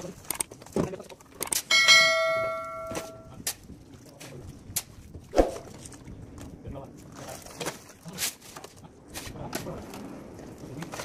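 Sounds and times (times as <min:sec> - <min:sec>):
bright notification bell chime: 0:01.7 - 0:03.3.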